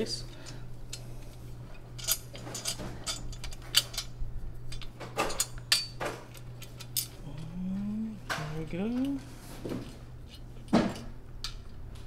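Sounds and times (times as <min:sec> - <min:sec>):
steady low hum: 0:00.0 - 0:12.0
metal clicks and clinks: 0:02.0 - 0:04.1.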